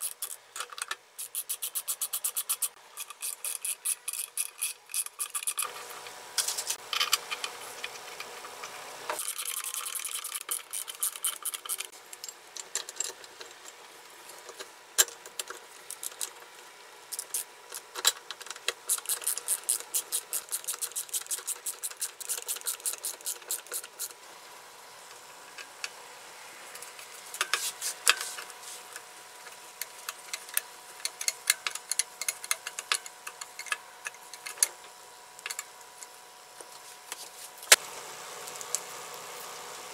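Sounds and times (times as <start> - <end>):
screwdriver clicking and scraping metal: 0.0 - 8.4, 9.2 - 16.4, 17.1 - 24.2, 26.8 - 34.7.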